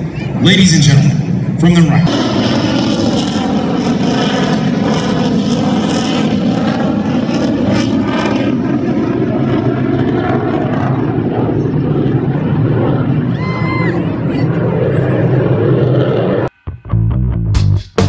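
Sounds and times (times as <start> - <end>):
fighter jet engines rumbling: 0.0 - 17.1.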